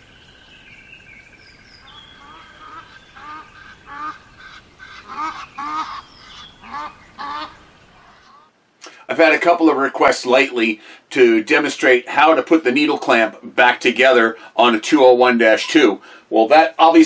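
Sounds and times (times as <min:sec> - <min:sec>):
high bird chirps: 0:00.0 - 0:08.5
geese honking: 0:01.8 - 0:08.5.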